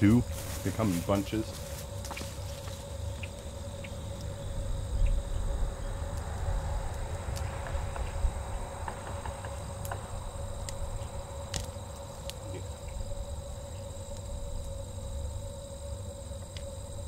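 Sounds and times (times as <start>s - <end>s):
insects trilling: 0.0s - 17.0s
low rumble: 3.0s - 16.2s.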